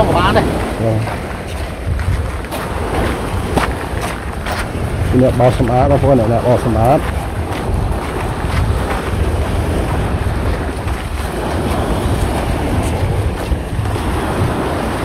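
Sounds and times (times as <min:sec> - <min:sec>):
small waves breaking on beach: 0:00.0 - 0:15.0
wind buffeting microphone: 0:00.0 - 0:15.0.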